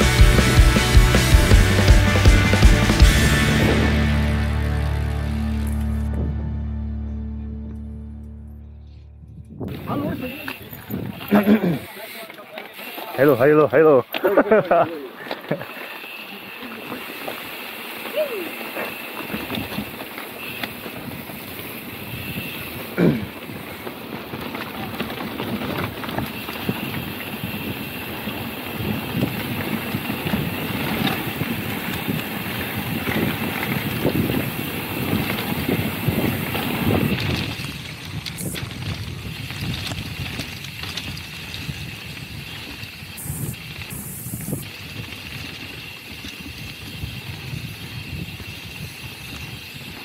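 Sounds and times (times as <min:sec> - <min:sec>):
mountain bike rattling on trail: 0:09.7 - 0:50.0.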